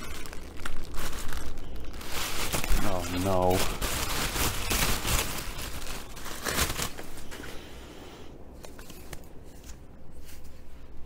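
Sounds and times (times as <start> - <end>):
plastic bag crinkling: 0.0 - 7.4.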